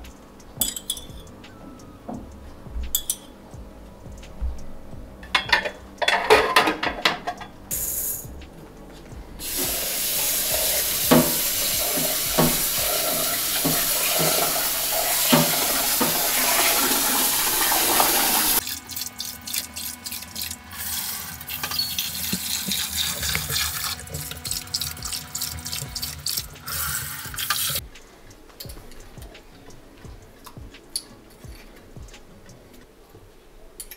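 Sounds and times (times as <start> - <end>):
kitchen tap running: 9.4 - 27.8.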